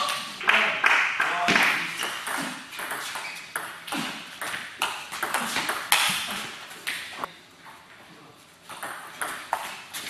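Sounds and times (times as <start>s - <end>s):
ping pong ball hitting paddles: 0.8s - 6.3s, 8.7s - 9.8s.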